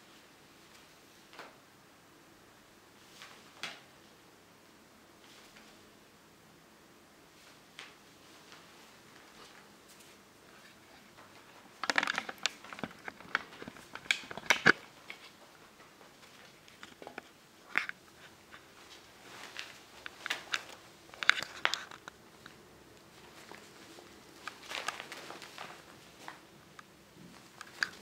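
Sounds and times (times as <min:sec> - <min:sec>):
plastic sheeting crinkling: 0:07.4 - 0:17.1, 0:17.7 - 0:26.5.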